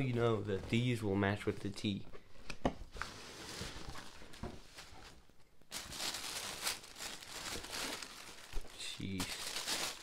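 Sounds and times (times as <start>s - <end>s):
tissue paper rustling: 3.0s - 10.0s.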